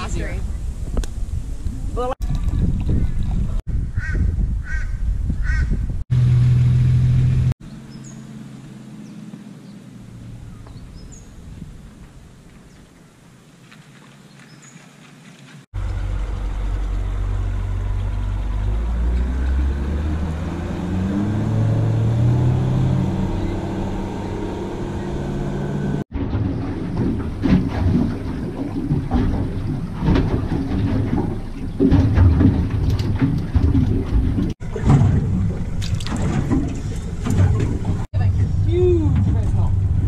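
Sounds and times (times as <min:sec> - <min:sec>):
water noise: 0:00.0 - 0:04.1, 0:05.4 - 0:40.0
outboard motor: 0:06.1 - 0:11.3, 0:15.8 - 0:40.0
boat hull knocks: 0:26.2 - 0:38.1.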